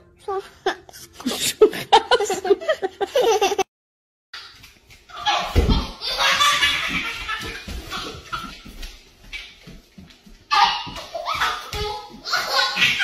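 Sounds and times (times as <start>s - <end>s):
breathy laughter: 0.6s - 3.6s.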